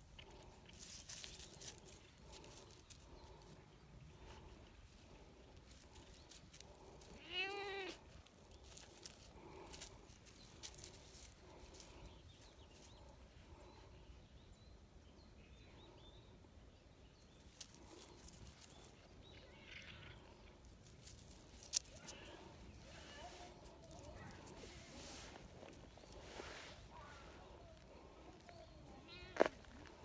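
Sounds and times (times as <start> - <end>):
cat meowing: 7.2 - 8.0.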